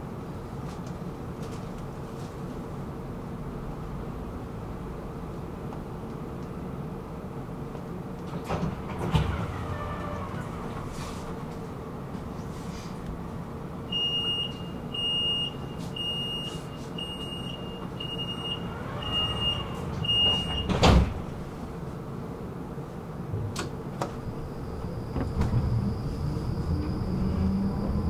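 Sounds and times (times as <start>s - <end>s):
tram hum: 0.0s - 28.0s
tram doors clunking shut: 8.2s - 11.7s, 17.8s - 21.8s, 23.2s - 27.0s.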